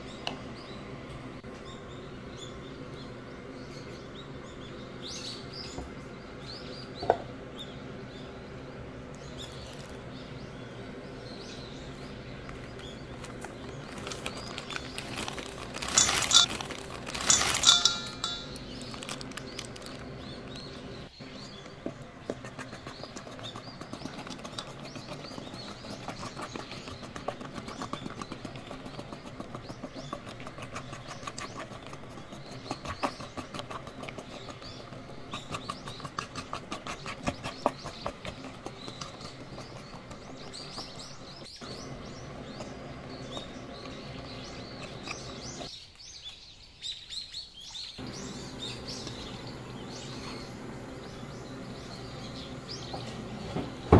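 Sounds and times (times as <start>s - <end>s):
fork scraping metal bowl: 14.2s - 18.6s, 22.3s - 41.1s.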